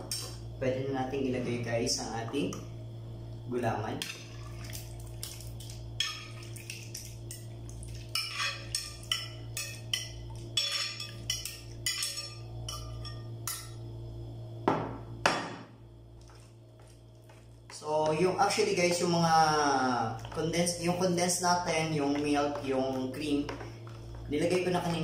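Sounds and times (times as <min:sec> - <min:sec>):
metal spoon scraping glass bowl: 0:08.2 - 0:13.1
knocks on plastic basin: 0:14.7 - 0:15.6.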